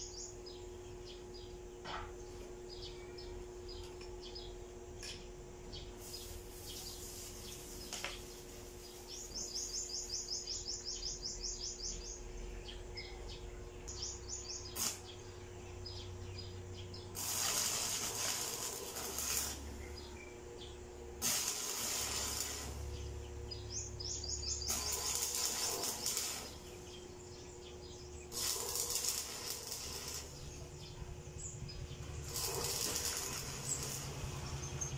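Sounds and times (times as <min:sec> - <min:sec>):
arc welding crackle and hiss: 0:00.0 - 0:00.5, 0:03.7 - 0:12.2, 0:13.9 - 0:34.9
bird chirping: 0:02.6 - 0:17.2, 0:22.8 - 0:34.9.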